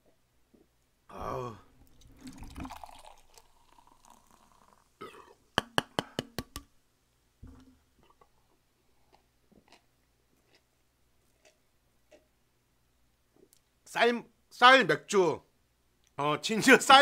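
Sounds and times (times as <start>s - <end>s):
beer pouring into glass: 1.8s - 5.2s.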